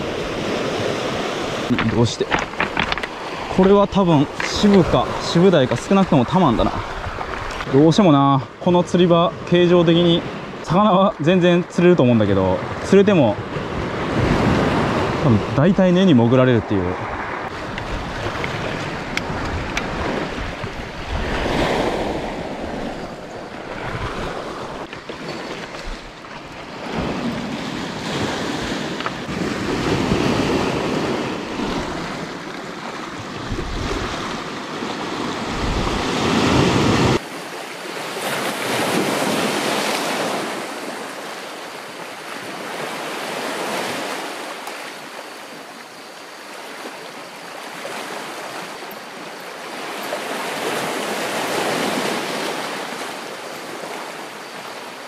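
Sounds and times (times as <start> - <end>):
wind rumbling on microphone: 0.0 - 7.8, 17.0 - 37.2
waves on a rocky shore: 0.0 - 55.0.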